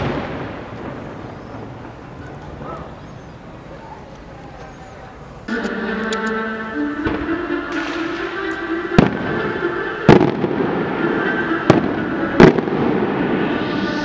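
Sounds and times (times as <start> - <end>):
fireworks bangs: 0.0 - 3.8, 7.0 - 14.0.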